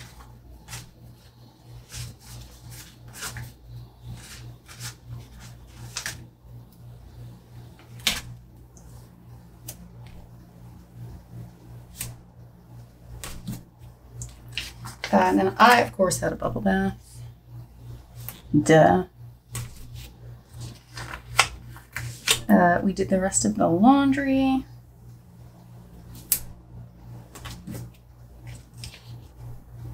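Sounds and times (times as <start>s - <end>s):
sticker sheets crinkling: 0.0s - 6.3s, 14.2s - 16.0s, 19.5s - 22.5s, 27.3s - 29.4s
faint low hum: 0.0s - 29.9s.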